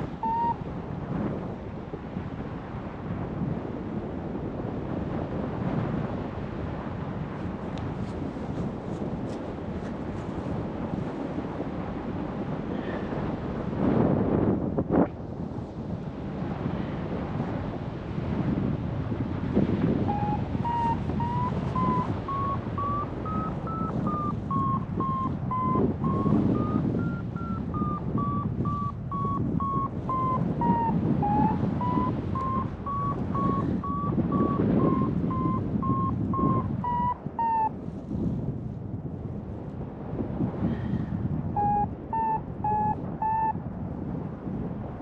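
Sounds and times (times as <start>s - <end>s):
variometer short beeps: 0.0s - 0.6s, 20.1s - 37.7s, 41.6s - 43.6s
wind rushing over microphone: 0.0s - 45.0s.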